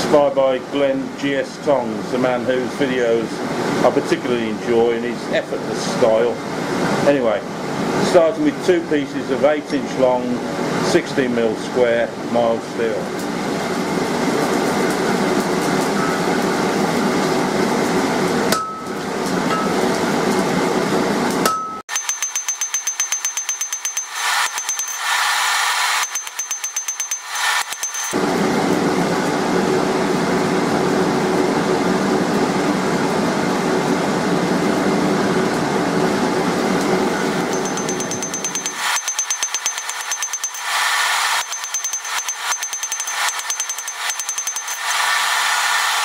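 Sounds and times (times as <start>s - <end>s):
hammer striking steel on anvil: 18.5s - 19.8s, 21.4s - 25.2s, 26.0s - 28.2s, 37.5s - 40.8s, 41.4s - 45.0s.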